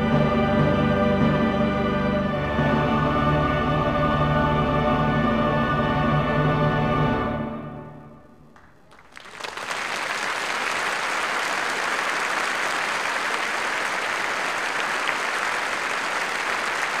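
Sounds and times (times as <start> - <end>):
choir and orchestra chord: 0.0 - 8.4
audience applauding: 8.6 - 17.0.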